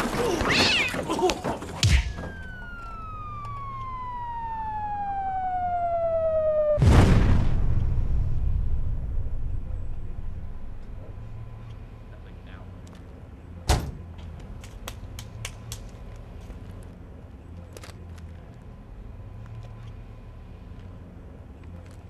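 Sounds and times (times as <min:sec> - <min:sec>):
heavy metal crash: 0:06.8 - 0:10.6.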